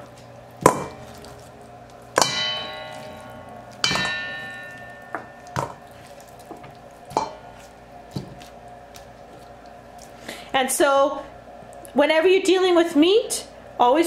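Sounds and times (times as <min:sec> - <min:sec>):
metal bowl clanging: 0:00.6 - 0:08.5.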